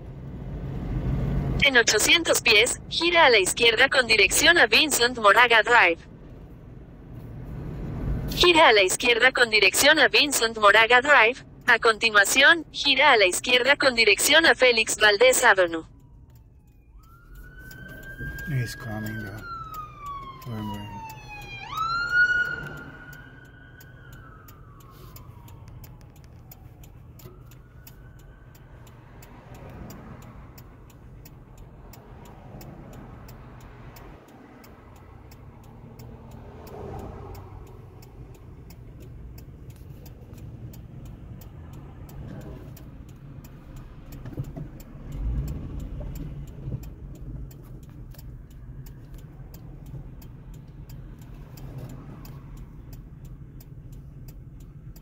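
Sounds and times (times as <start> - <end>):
traffic rumbling past: 0.0 - 55.0
turn signal ticking: 0.0 - 55.0
ambulance siren wailing: 8.3 - 42.8.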